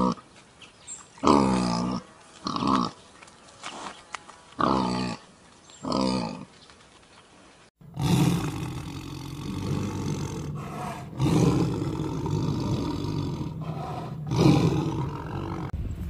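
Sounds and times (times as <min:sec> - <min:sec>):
tiger roaring: 0:07.8 - 0:15.8.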